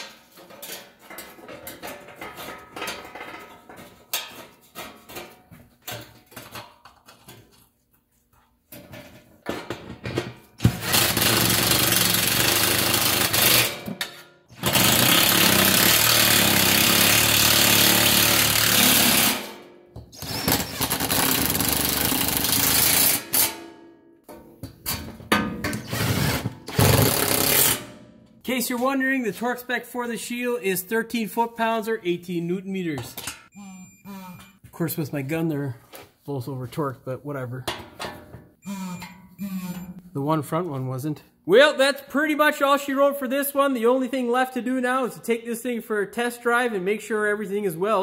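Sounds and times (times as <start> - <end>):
impact wrench hammering: 10.6 - 19.6, 24.3 - 27.9.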